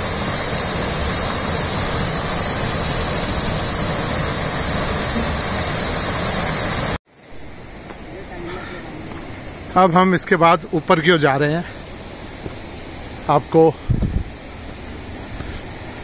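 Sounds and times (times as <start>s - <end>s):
stream pouring down rocky waterfall: 0.0s - 7.0s.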